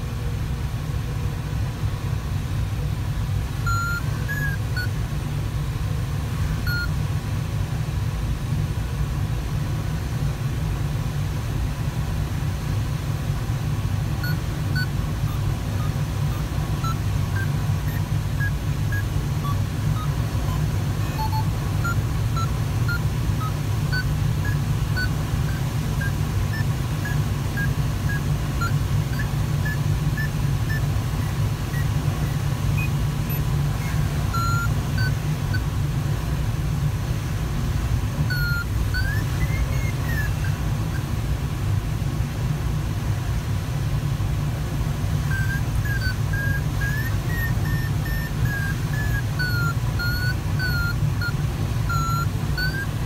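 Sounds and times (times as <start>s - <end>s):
variometer short beeps: 3.5s - 5.0s, 5.8s - 7.1s, 14.1s - 36.2s, 37.9s - 41.2s, 45.0s - 53.0s
swooping tone: 14.2s - 35.6s, 38.3s - 41.0s, 45.3s - 53.0s.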